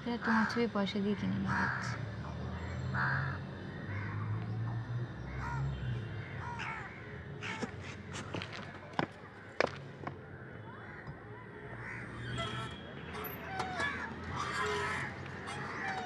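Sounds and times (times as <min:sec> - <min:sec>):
crows cawing: 0:00.2 - 0:02.0, 0:02.6 - 0:04.4, 0:06.2 - 0:08.2, 0:11.8 - 0:12.2, 0:13.7 - 0:16.0.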